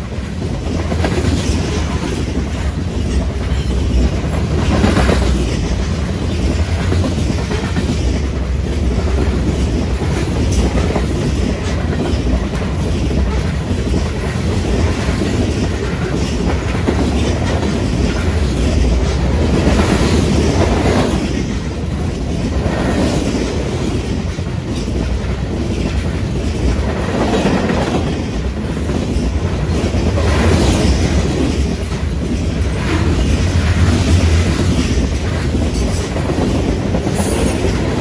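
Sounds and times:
rhythmic clickety-clack: 0.0s - 38.0s
train wheels rumbling on rails: 0.0s - 38.0s.

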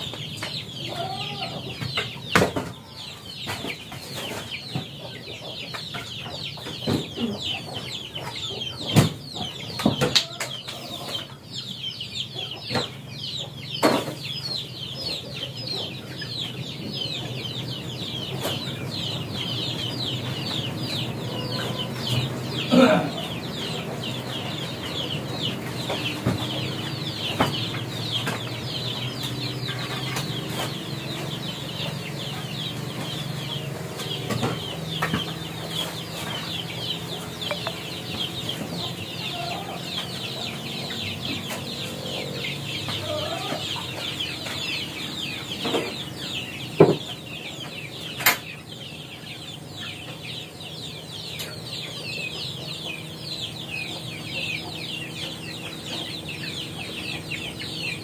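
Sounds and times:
chickens cheeping: 0.0s - 58.0s
sharp knocks and clatters: 37.3s - 39.0s, 46.8s - 47.2s.

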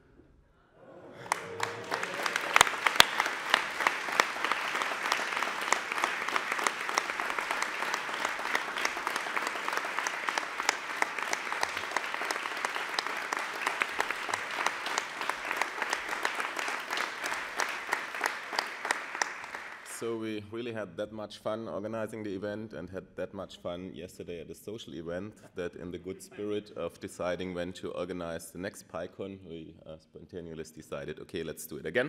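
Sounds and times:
large audience applauding: 0.9s - 20.1s.

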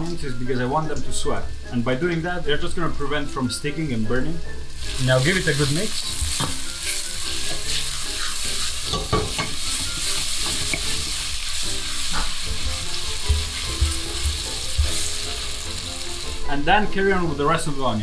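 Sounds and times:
onions sizzling in oil: 0.1s - 18.0s.

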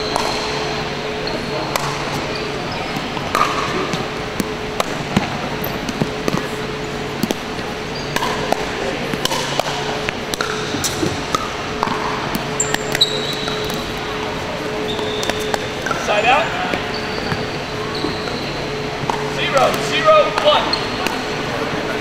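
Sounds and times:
steady low hum: 0.0s - 22.0s
ball bouncing on wooden floor: 10.4s - 13.8s.

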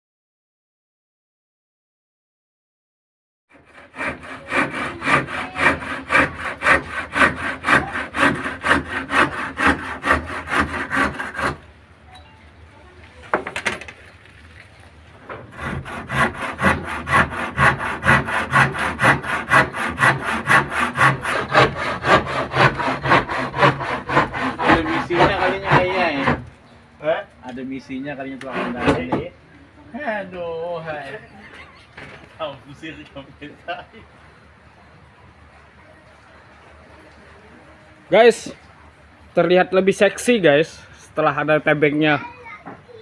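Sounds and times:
handsaw cutting wood: 3.5s - 11.6s, 15.5s - 26.5s, 28.3s - 29.3s.

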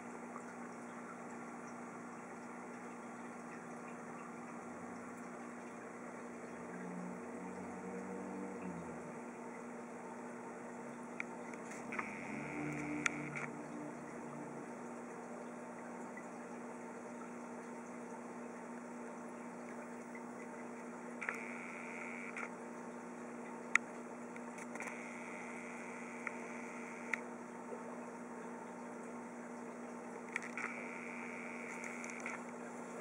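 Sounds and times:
water bubbling: 0.0s - 22.2s
aquarium equipment humming: 0.0s - 33.0s
sharp clicks: 21.2s - 21.4s.

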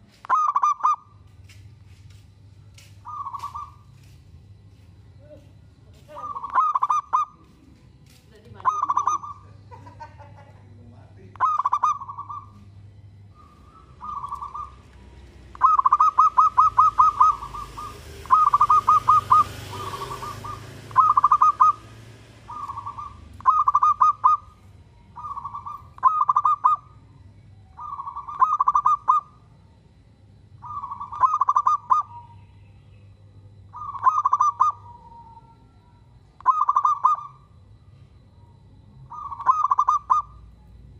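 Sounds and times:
dove cooing: 0.0s - 1.2s, 3.0s - 4.1s, 6.0s - 7.6s, 8.5s - 27.1s, 27.7s - 29.5s, 30.6s - 32.6s, 33.6s - 37.6s, 38.9s - 40.8s.

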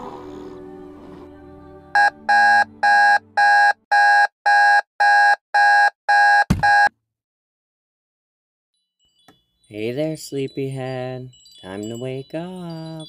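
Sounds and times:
alarm clock beeping: 2.0s - 6.9s.

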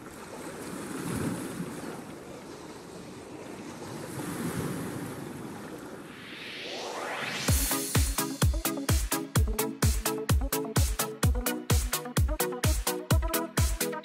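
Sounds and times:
waves: 0.0s - 14.0s
rushing wind: 3.7s - 7.6s
rising whoosh: 5.8s - 8.5s.

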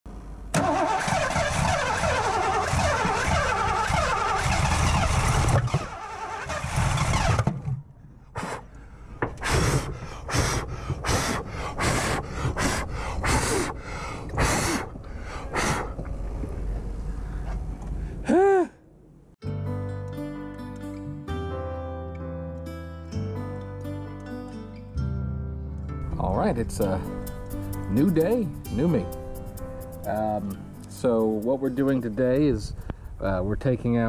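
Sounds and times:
engine backfiring bursts: 0.5s - 7.7s
engine cranking and running roughly: 0.5s - 7.7s.

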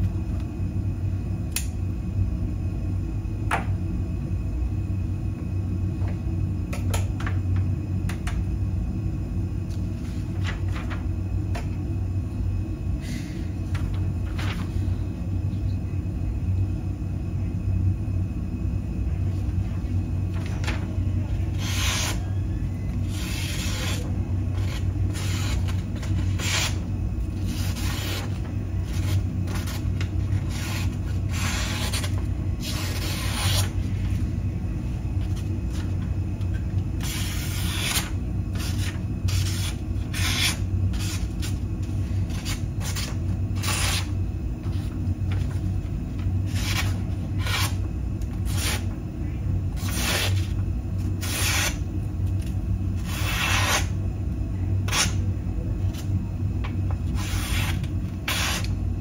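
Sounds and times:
steady low hum: 0.0s - 59.0s
knife blade slicing card: 54.9s - 55.2s.

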